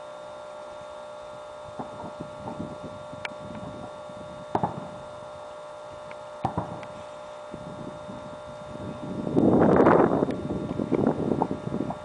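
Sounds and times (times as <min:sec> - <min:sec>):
fireworks popping and crackling: 0:01.7 - 0:12.0
fireworks double bang: 0:03.8 - 0:05.0, 0:06.4 - 0:07.0.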